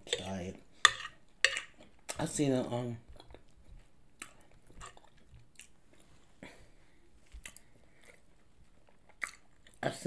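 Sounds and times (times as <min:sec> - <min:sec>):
person chewing food: 0:00.0 - 0:02.2, 0:03.0 - 0:06.3, 0:07.2 - 0:09.8.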